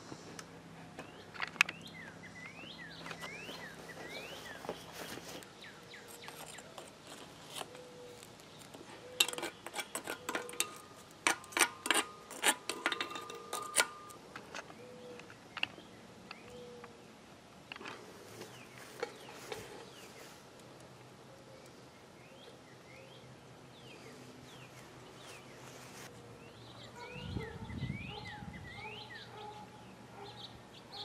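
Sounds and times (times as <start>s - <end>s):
birds chirping: 0.9s - 17.1s, 18.4s - 31.0s
metal tool clinking and scraping: 6.0s - 14.6s.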